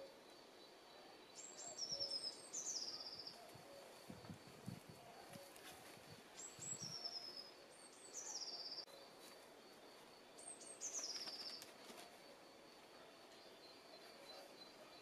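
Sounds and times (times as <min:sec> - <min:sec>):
songbird singing trills: 0:00.0 - 0:09.2, 0:10.2 - 0:11.7.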